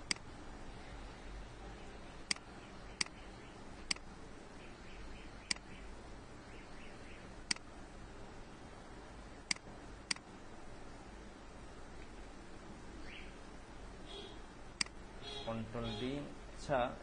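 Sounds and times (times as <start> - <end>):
faint low hum: 0.0 - 17.0
computer mouse clicking: 7.5 - 7.7, 9.5 - 10.2.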